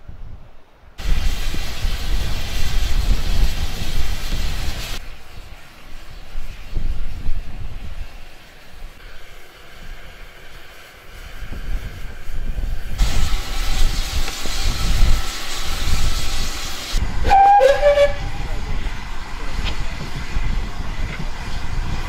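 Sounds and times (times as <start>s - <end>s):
steam locomotive hissing steam: 1.0s - 22.0s
steam whistle blast: 16.9s - 18.6s.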